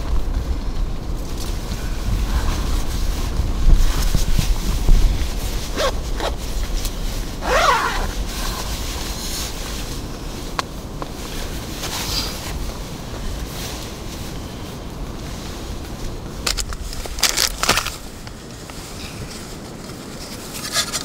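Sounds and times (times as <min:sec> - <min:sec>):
low rumble: 0:00.0 - 0:19.8
nylon fabric rustling: 0:01.5 - 0:21.0
jacket zipper being pulled: 0:05.7 - 0:06.4, 0:07.4 - 0:08.6.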